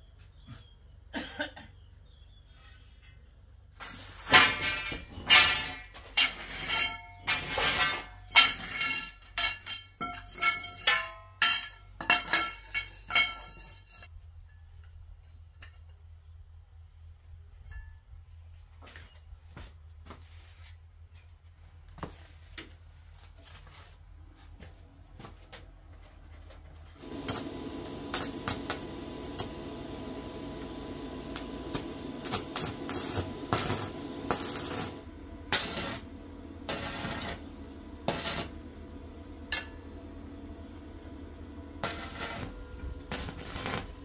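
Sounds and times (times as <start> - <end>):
welding arc crackling and buzzing: 3.8 - 9.8, 27.0 - 44.0
welding arc pops: 27.0 - 44.0
metal frame clinking: 37.8 - 40.2.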